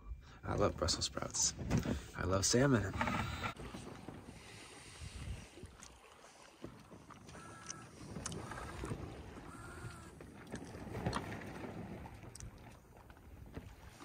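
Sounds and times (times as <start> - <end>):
boat creaking: 0.6 - 14.0
water rushing along hull: 0.6 - 14.0
wind over microphone: 2.9 - 5.8.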